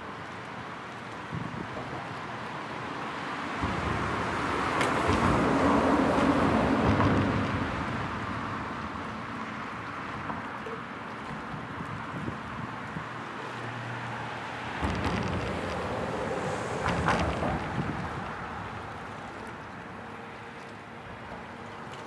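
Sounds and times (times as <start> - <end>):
vehicle passing by: 13.5 - 19.8.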